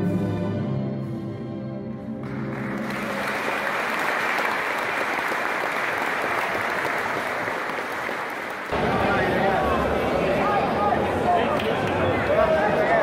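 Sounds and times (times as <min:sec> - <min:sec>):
applause: 0:02.2 - 0:09.2, 0:11.5 - 0:13.0.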